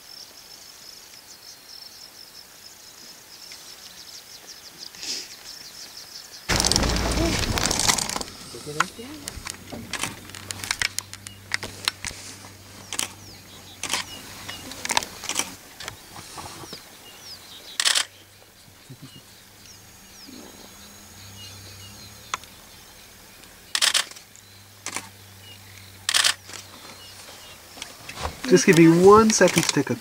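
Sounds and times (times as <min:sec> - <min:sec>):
camera shutters clicking: 0:09.3 - 0:11.1, 0:12.9 - 0:13.2, 0:13.8 - 0:14.1, 0:14.9 - 0:15.6, 0:17.8 - 0:18.1, 0:23.8 - 0:24.2, 0:26.1 - 0:26.6
faint bird chirps: 0:11.0 - 0:30.0.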